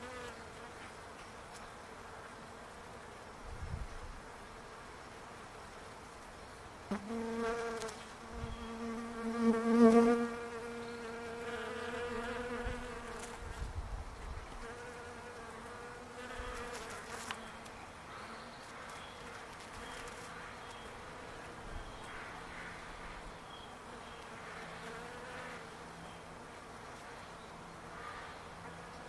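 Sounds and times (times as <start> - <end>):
bees buzzing: 6.9 - 13.6, 14.6 - 21.6.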